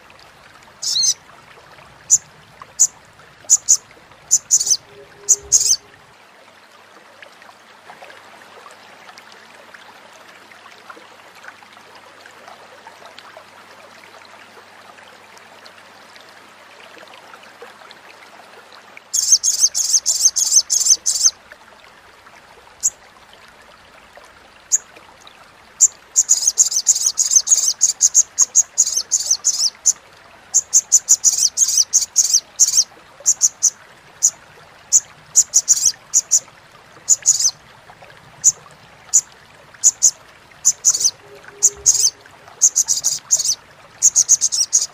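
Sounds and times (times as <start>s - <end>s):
faint steady hiss: 0.0s - 44.9s
bird chattering call: 0.8s - 1.2s, 3.5s - 5.9s, 30.6s - 33.7s, 34.9s - 36.4s, 37.1s - 37.5s, 39.8s - 44.9s.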